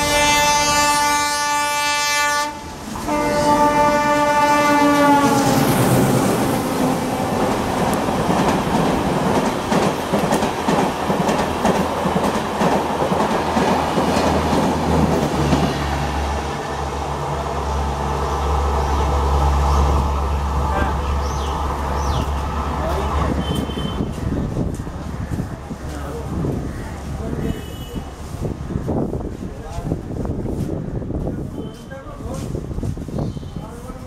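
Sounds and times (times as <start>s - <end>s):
locomotive horn blasts: 0.0s - 5.6s, 23.3s - 24.2s
train coaches rushing past: 0.0s - 34.0s.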